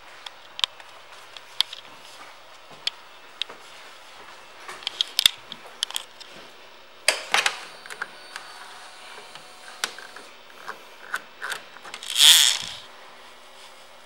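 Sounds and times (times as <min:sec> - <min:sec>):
hand handling clicks and rustling: 0:09.8 - 0:12.8.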